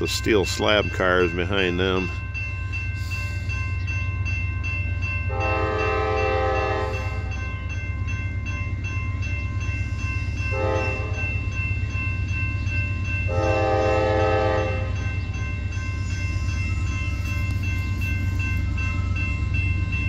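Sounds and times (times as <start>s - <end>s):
locomotive air horn: 5.3s - 7.4s, 10.5s - 11.3s, 13.3s - 15.0s.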